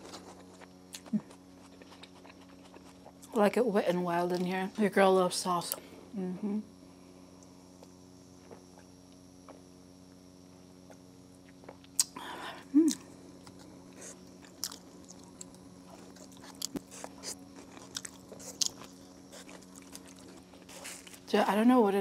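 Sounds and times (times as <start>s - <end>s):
food being chewed: 0.0s - 3.4s, 7.4s - 10.2s, 10.8s - 12.2s, 12.9s - 21.3s.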